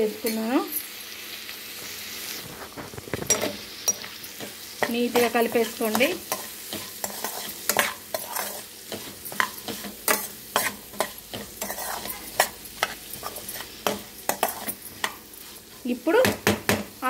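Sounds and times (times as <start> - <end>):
food sizzling in oil: 0.0 - 17.0
metal spoon scraping pan: 2.9 - 16.3.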